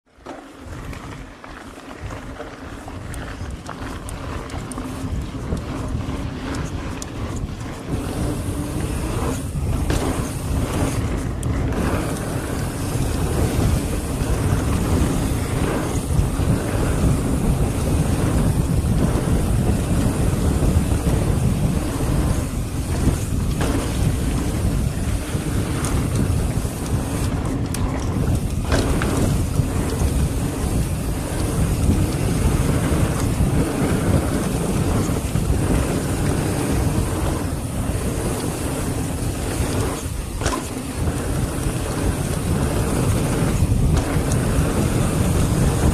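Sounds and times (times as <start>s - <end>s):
bike rattling over bumps: 0.1s - 45.9s
bike tyres rumbling on dirt: 0.1s - 45.9s
wind on microphone: 0.7s - 45.9s.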